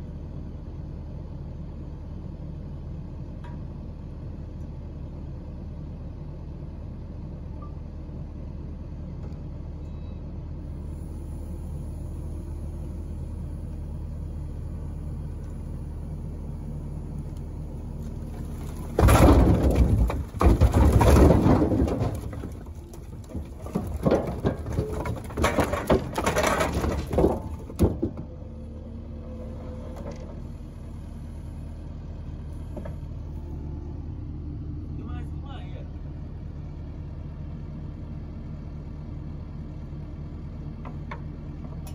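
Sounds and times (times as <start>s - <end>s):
engine running steadily: 0.0s - 41.9s
wood pieces sliding and settling: 17.2s - 28.4s
logs tumbling and knocking: 17.2s - 28.5s.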